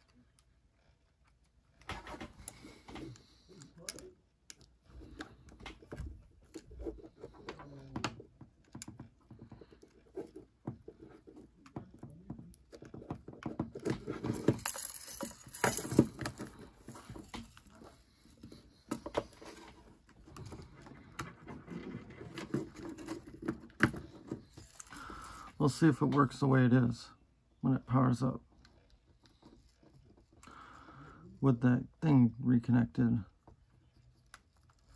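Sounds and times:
metal and plastic shells clicking: 14.2s - 17.6s.

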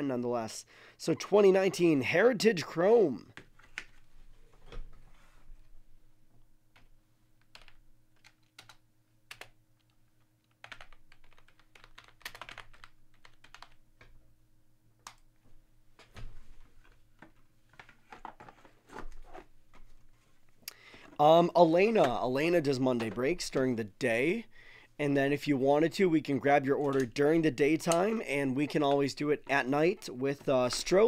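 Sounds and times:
low steady hum: 0.0s - 31.0s
faint keyboard typing: 6.7s - 14.2s, 26.5s - 31.0s.

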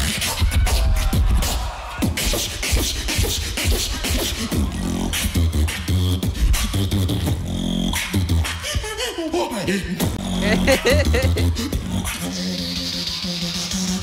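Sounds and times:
beatboxing: 0.0s - 14.0s
held pitched bass tones: 10.0s - 12.0s.

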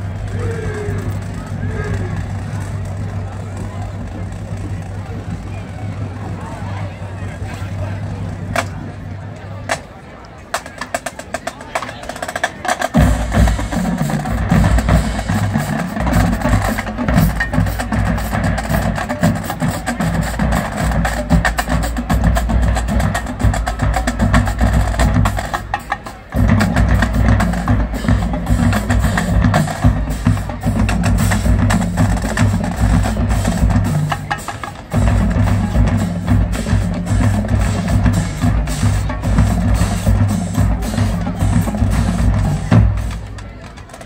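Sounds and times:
tenor drums: 0.0s - 44.0s
snare drums: 10.5s - 44.0s
cymbals: 12.8s - 43.6s.

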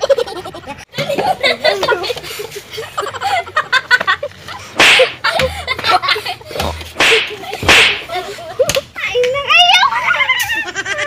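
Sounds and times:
people laughing: 0.0s - 8.9s, 9.9s - 11.0s
sharp smack: 4.8s - 5.2s, 6.6s - 8.1s
people talking: 5.4s - 11.0s
water bottle swishing: 6.7s - 8.2s.

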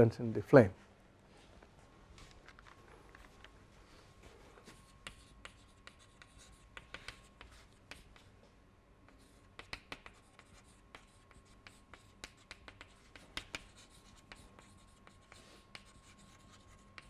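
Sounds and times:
chalk tapping on chalkboard: 4.6s - 8.3s, 9.1s - 17.0s.

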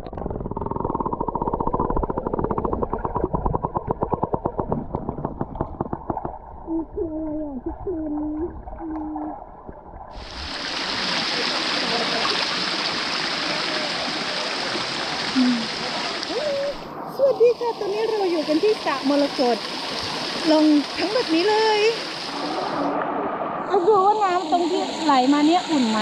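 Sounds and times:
muffled underwater rumble: 0.0s - 10.6s
rapid crackling ticks: 0.1s - 6.4s
water hissing: 10.2s - 16.9s.

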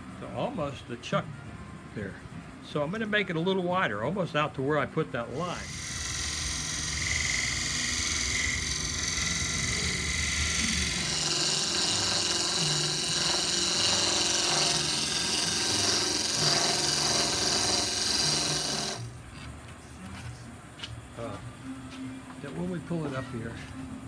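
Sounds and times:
wood lathe hissing cut: 5.3s - 19.1s.

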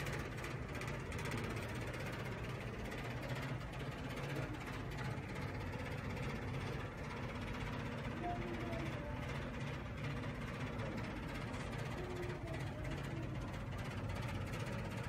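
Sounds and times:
model railway hum: 0.0s - 15.0s.

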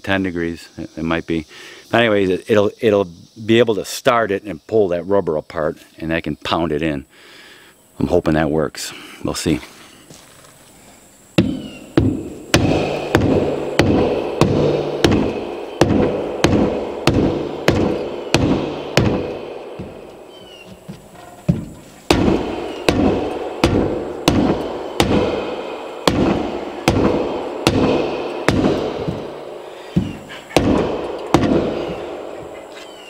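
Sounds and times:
mallet pounding plastic pipe: 11.4s - 20.2s, 20.8s - 32.5s.

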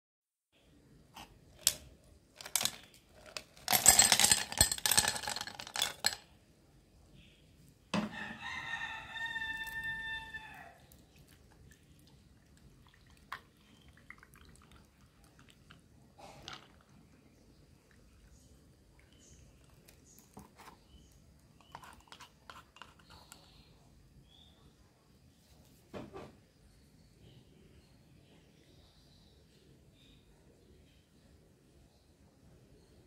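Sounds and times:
ice cubes clattering into glass: 2.4s - 6.2s
rooster crowing: 8.0s - 10.8s.

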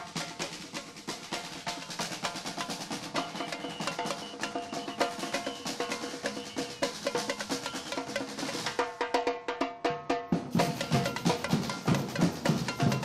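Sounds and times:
snare drum strokes: 0.0s - 9.0s, 10.4s - 13.0s.

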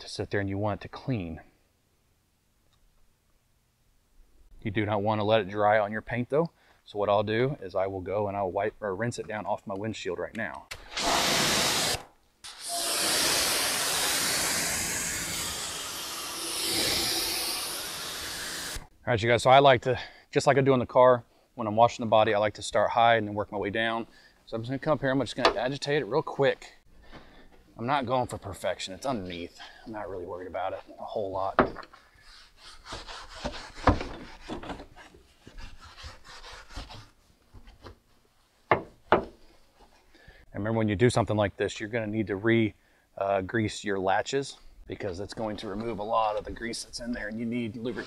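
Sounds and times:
pressure washer spray hissing: 12.6s - 18.8s
stiff brush scrubbing: 32.2s - 37.2s.

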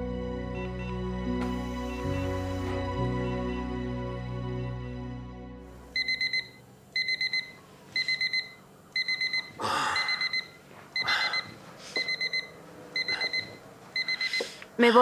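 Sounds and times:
alarm clock beeping: 6.0s - 14.5s.

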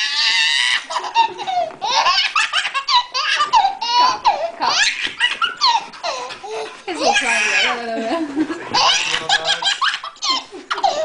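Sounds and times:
baby laughing and squealing: 0.0s - 7.8s, 8.7s - 11.0s.

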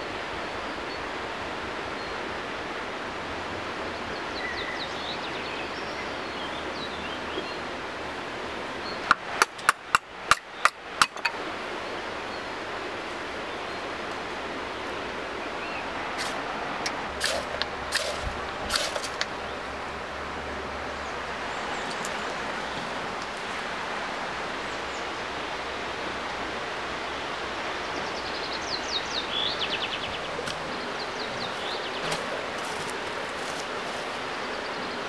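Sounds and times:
steady background hiss: 0.0s - 35.0s
sharp knocks: 9.1s - 11.4s
wood shavings fire crackling: 17.2s - 19.3s, 31.5s - 34.2s.

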